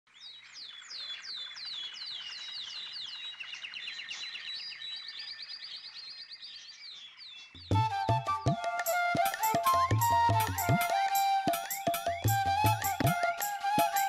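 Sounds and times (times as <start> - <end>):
small birds chirping: 0.1 - 7.9.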